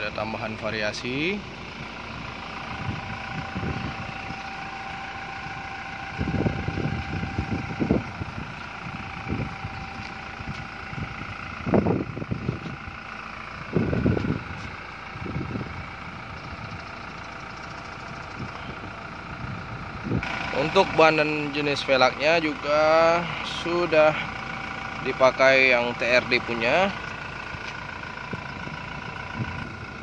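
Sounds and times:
vehicle engine idling: 0:00.0 - 0:30.0
low rumbles on microphone: 0:06.1 - 0:12.9, 0:13.6 - 0:16.9.

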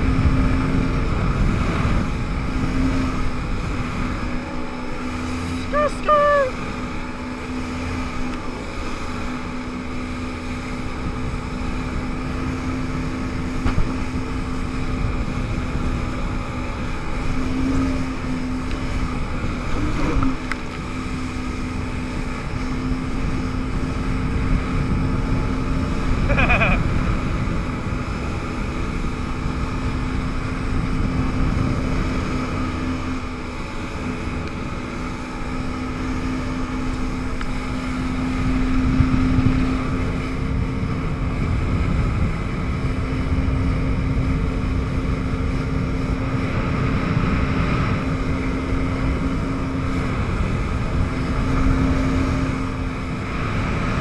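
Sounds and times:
jet ski engine running: 0:00.0 - 0:54.0
wind and water spray rush: 0:00.0 - 0:54.0.

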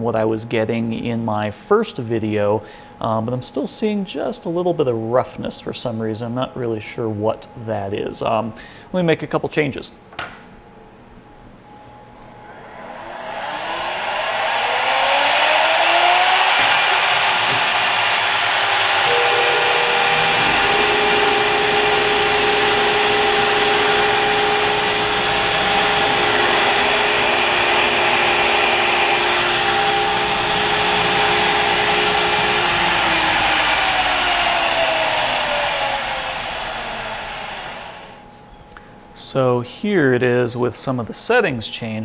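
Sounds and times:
router spindle whining: 0:11.7 - 0:38.2
end mill cutting aluminum: 0:12.4 - 0:38.2.

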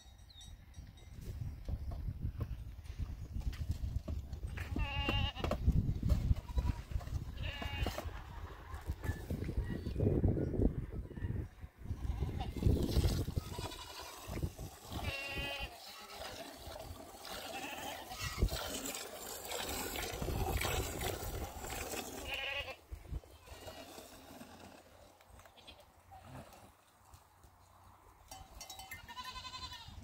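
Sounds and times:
goats bleating: 0:04.6 - 0:05.5, 0:06.4 - 0:08.0, 0:13.4 - 0:16.6, 0:17.2 - 0:18.5, 0:22.2 - 0:22.8, 0:29.0 - 0:30.0
milk squirting into a metal bowl: 0:18.2 - 0:22.3.

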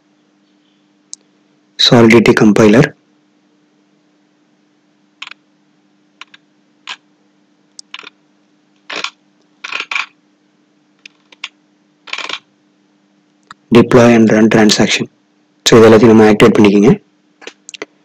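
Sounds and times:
faint low hum: 0:00.0 - 0:18.0
computer mouse clicks: 0:05.2 - 0:05.4, 0:06.2 - 0:07.0, 0:07.8 - 0:08.1, 0:08.9 - 0:10.1, 0:11.0 - 0:12.4.

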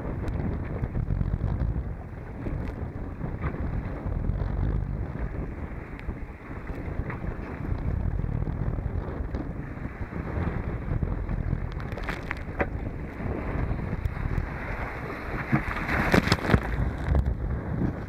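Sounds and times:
wind buffeting the microphone: 0:00.0 - 0:18.0
wave breaking over bow: 0:00.9 - 0:18.0
water splashing: 0:11.3 - 0:17.2.

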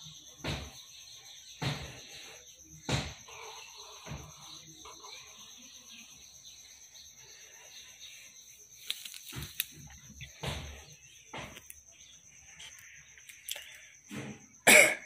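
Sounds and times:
pen scratching on paper: 0:03.2 - 0:06.2.

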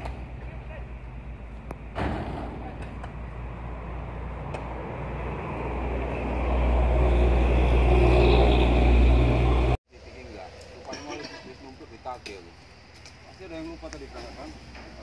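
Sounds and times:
vehicle engine droning: 0:00.0 - 0:09.8.

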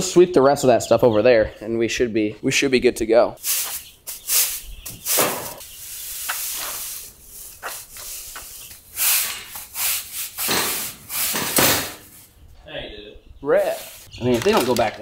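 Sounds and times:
broom sweeping concrete floor: 0:03.4 - 0:12.3, 0:13.6 - 0:14.1.

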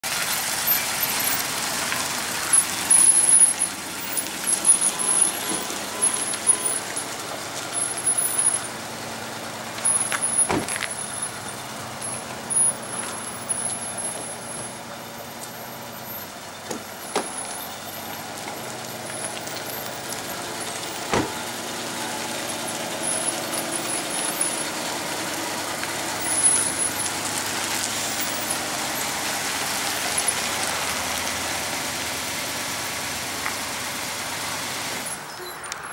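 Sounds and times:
truck engine running: 0:00.0 - 0:35.4
sharp knocks: 0:21.1 - 0:21.4.

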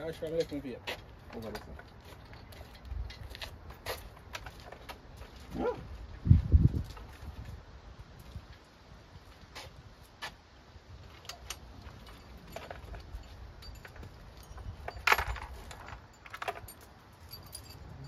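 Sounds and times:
metal clinks and clanks: 0:11.2 - 0:18.0.

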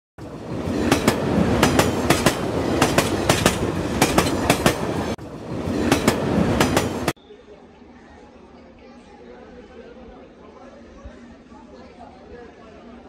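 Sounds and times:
train rumble: 0:00.2 - 0:07.2
train wheels clattering over rail joints: 0:00.8 - 0:05.1.

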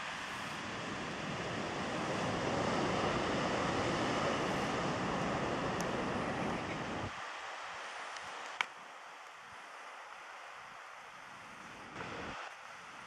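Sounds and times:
wind buffeting microphone: 0:00.5 - 0:07.2.

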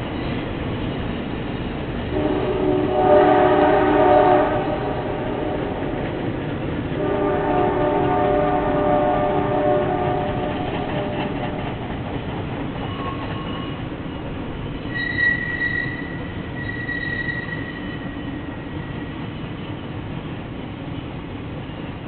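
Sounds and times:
high train squeal: 0:00.0 - 0:22.0
train rumbling across bridge: 0:00.0 - 0:22.0.

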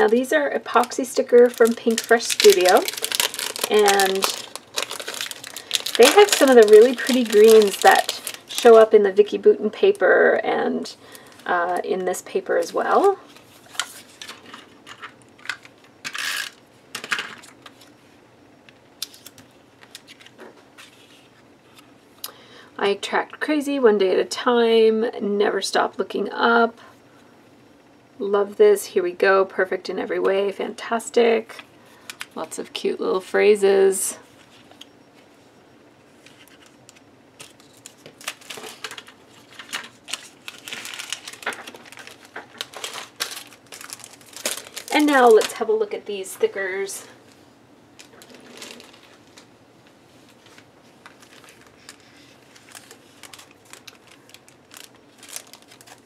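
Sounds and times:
sticker sheet rustle: 0:00.0 - 0:08.9
plastic bag crinkling: 0:00.0 - 0:10.1, 0:11.0 - 0:11.8, 0:36.2 - 0:45.9, 0:46.7 - 0:49.5, 0:50.2 - 0:56.0.

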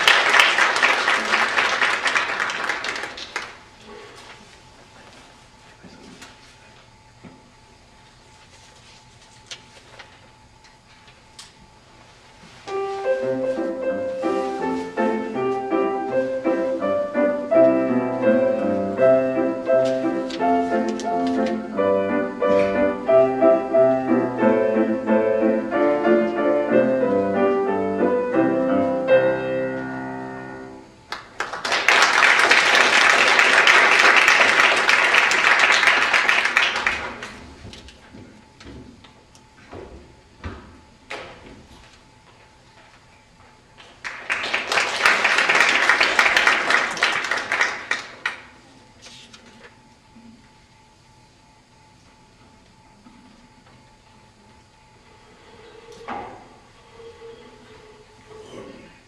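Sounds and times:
audience applause: 0:00.0 - 0:03.6, 0:31.1 - 0:37.4, 0:43.8 - 0:48.5
grand piano piece: 0:12.6 - 0:37.4.

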